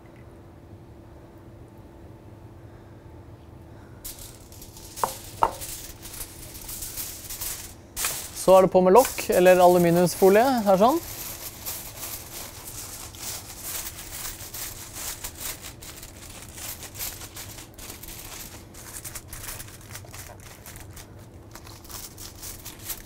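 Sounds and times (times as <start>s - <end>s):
aluminium foil crinkling: 4.0s - 23.0s.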